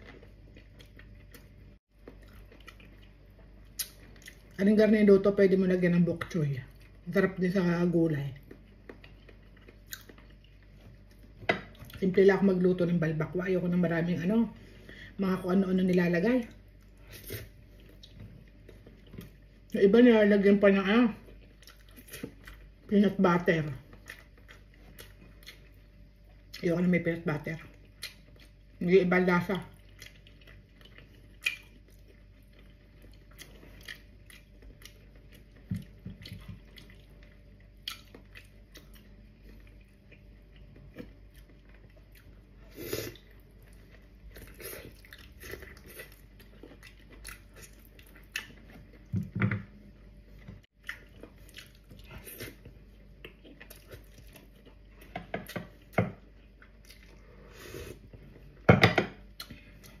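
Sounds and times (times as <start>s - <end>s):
chewing wet mouth sounds: 0.0s - 4.6s, 8.4s - 12.0s, 21.2s - 22.9s, 23.8s - 26.6s, 27.6s - 28.8s, 29.7s - 49.1s, 50.7s - 57.4s.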